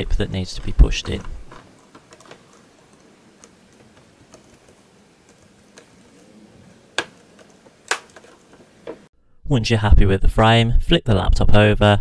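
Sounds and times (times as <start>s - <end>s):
laptop keyboard frame clicks: 6.9s - 9.1s.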